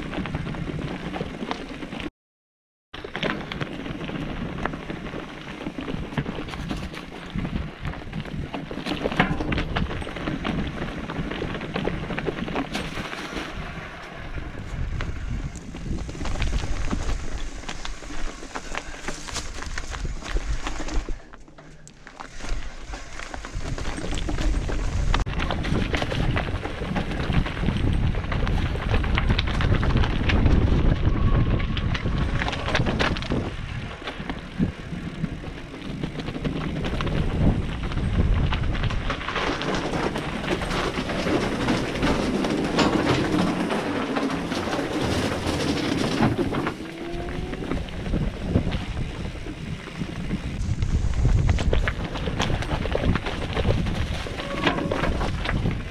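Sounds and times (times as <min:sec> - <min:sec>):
bike tyres rumbling over stones: 0:00.0 - 0:02.1, 0:03.0 - 0:55.9
bike knocks and rattles: 0:03.0 - 0:13.8, 0:31.8 - 0:55.9.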